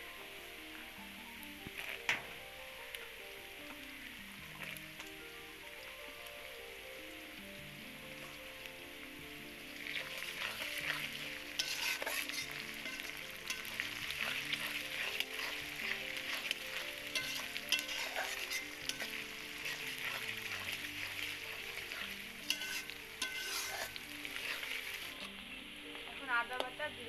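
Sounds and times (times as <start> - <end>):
onions sizzling in oil: 0.0 - 27.0
metal spatula scraping pan: 9.9 - 25.3.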